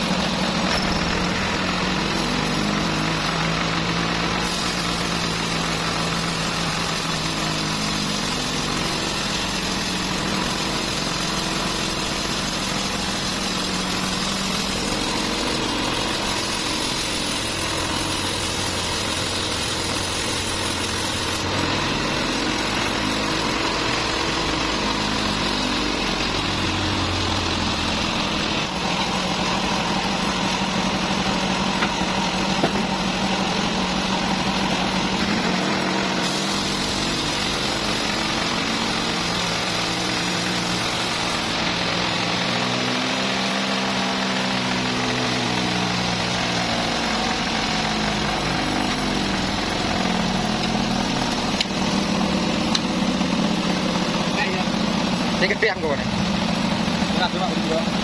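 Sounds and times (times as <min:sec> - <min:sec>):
band sawmill cutting log: 0:00.0 - 0:58.0
saw blade in wood: 0:04.4 - 0:23.6, 0:35.2 - 0:41.8.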